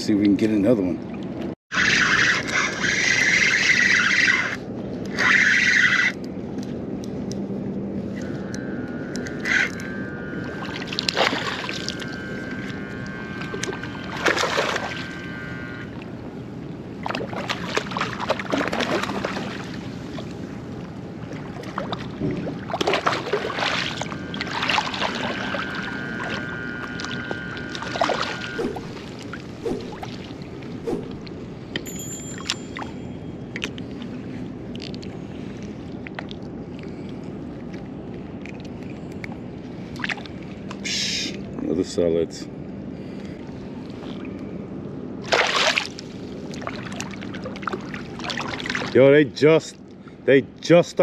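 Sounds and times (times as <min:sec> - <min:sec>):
faint steady whine: 0:01.4 - 0:51.0
water sloshing and splashing: 0:09.4 - 0:31.7, 0:32.3 - 0:40.8, 0:45.2 - 0:49.1.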